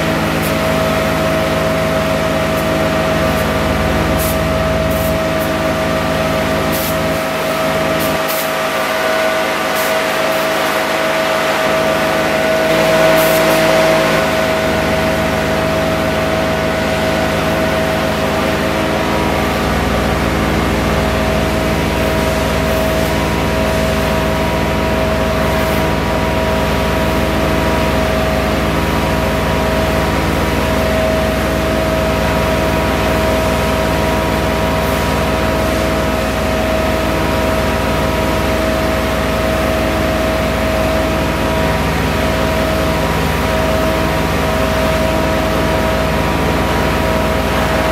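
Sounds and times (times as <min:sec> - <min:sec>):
pressure washer pump drone: 0:00.0 - 0:47.9
water jet spraying: 0:06.5 - 0:15.1.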